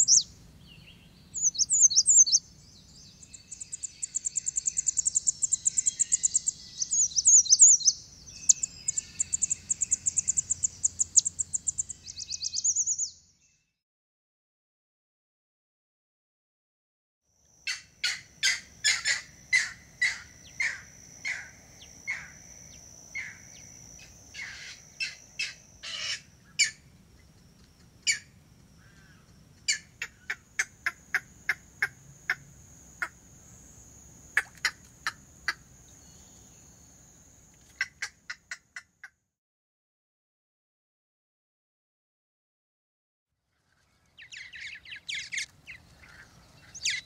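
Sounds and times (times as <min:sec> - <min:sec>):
heron calling: 0:00.0 - 0:00.3, 0:01.4 - 0:02.4, 0:03.4 - 0:12.8, 0:24.4 - 0:26.8, 0:44.2 - 0:47.0.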